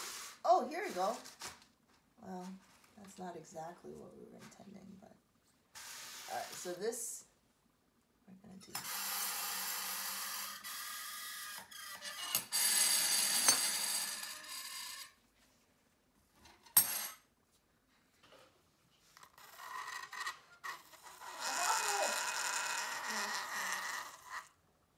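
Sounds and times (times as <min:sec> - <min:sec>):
metal utensils rattling on dry ice: 0:11.7 - 0:15.2, 0:19.3 - 0:24.4.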